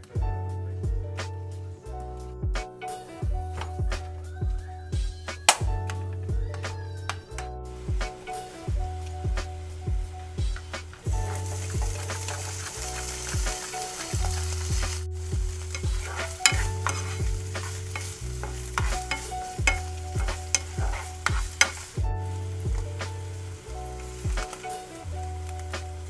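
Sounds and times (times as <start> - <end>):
plastic spatula scraping a pan: 10.8 - 22.0
vegetables sizzling in hot oil: 11.2 - 26.0.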